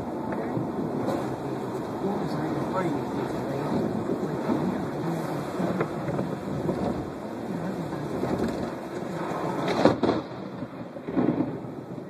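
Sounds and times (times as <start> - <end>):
car road and tyre noise: 0.0 - 12.0
sudden loud crack: 9.6 - 11.6.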